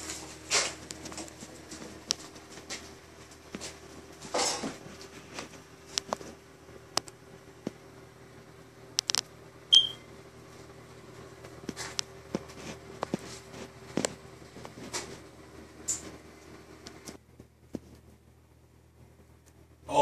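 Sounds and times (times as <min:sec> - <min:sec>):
steady low hum: 0:00.0 - 0:20.0
sharp click with high chirp: 0:09.7 - 0:10.0.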